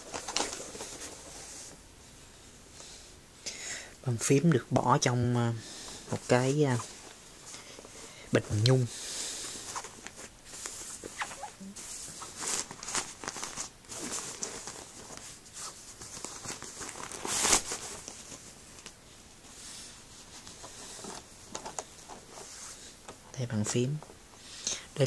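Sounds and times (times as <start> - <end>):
fabric bag rustling and scuffing: 9.6 - 18.5.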